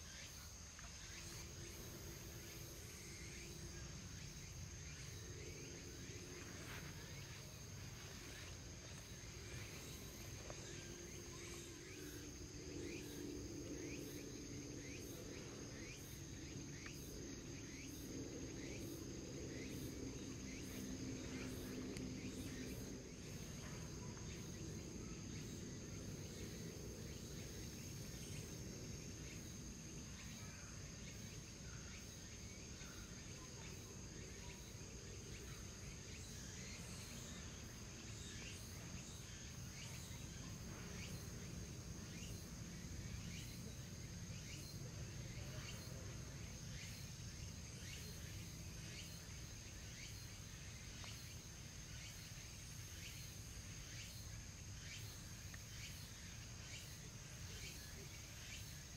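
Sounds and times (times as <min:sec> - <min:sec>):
high-pitched insect drone: 0:00.0 - 0:29.6.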